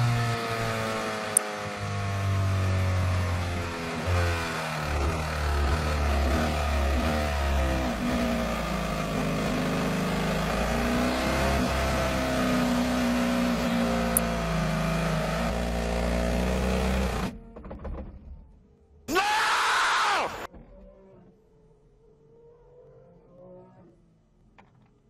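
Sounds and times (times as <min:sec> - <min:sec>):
race car engine droning: 0:00.0 - 0:17.7.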